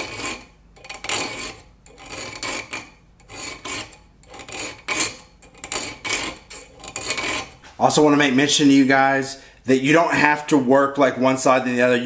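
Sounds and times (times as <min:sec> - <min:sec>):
metal ring rasping on file: 0:00.0 - 0:07.6.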